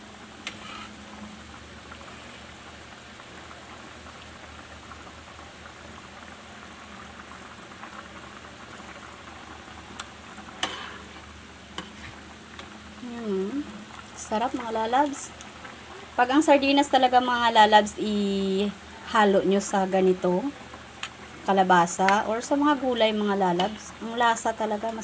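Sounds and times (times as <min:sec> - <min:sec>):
stew bubbling in a pan: 0:00.0 - 0:25.0.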